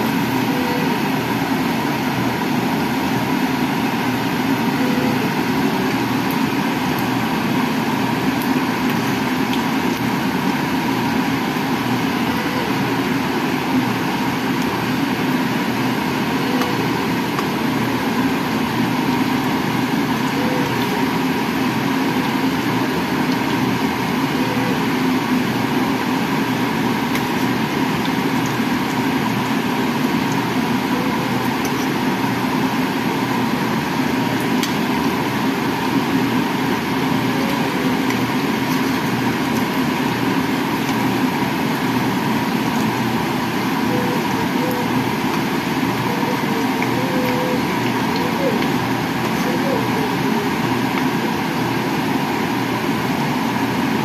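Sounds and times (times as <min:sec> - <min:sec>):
food sizzling in hot oil: 0:05.3 - 0:44.3.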